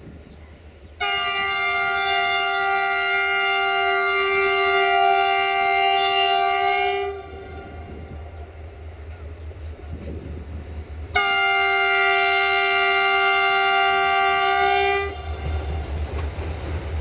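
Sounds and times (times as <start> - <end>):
low rumble of train: 0.0 - 17.0
locomotive air horn blast: 1.0 - 8.8, 11.1 - 16.1.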